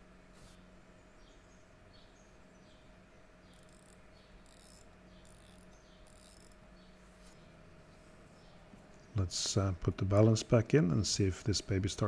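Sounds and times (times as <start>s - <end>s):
watch winding clicks: 3.5s - 6.6s.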